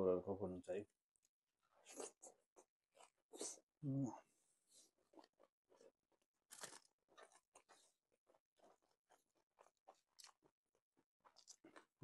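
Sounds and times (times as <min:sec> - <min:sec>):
crunchy chewing: 0:04.7 - 0:12.0
fingers mixing rice: 0:04.8 - 0:12.0.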